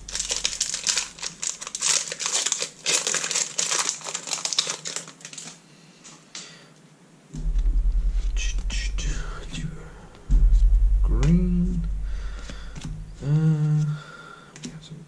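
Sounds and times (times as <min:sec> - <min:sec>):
plastic wrapper crinkling: 0:00.0 - 0:05.6
loud pulsing low hum: 0:07.4 - 0:14.0.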